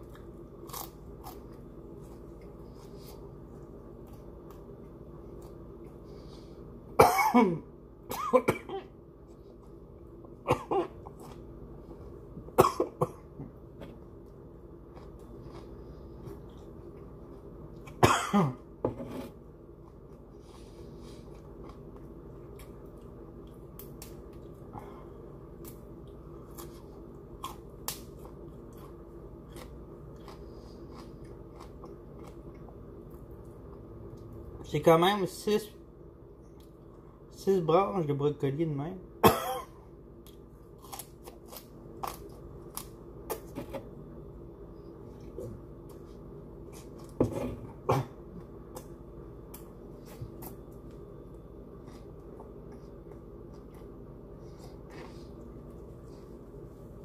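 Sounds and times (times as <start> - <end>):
steady low hum: 0.0 - 57.0
man coughing: 7.0 - 8.9, 10.5 - 11.0, 12.6 - 13.2, 18.0 - 18.6, 39.2 - 39.8.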